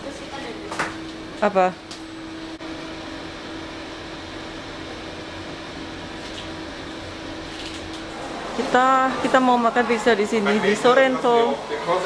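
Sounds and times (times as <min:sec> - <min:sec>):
air conditioning hum: 0:00.0 - 0:12.0.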